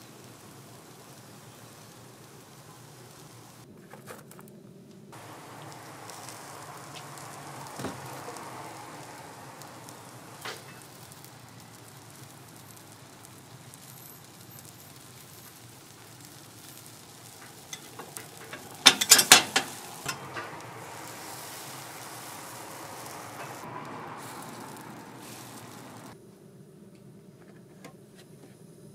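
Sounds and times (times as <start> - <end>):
batter sizzling in molds: 0.0 - 3.7, 5.1 - 26.2
sharp metal clatter: 17.4 - 21.1.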